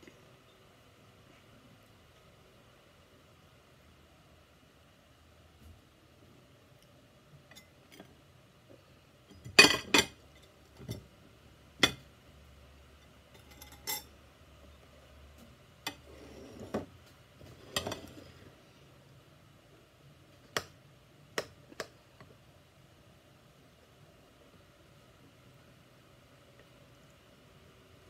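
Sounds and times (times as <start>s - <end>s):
dishes clinking together: 9.4s - 10.2s.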